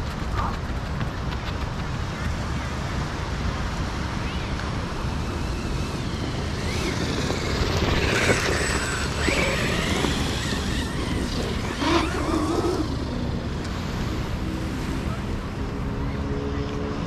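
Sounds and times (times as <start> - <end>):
wind rumble on microphone: 0.0 - 16.0
electric toy truck motor whining: 4.9 - 13.2.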